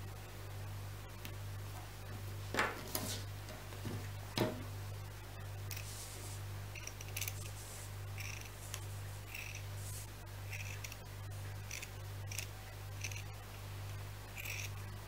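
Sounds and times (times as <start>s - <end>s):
handling knocks: 2.5s - 4.7s.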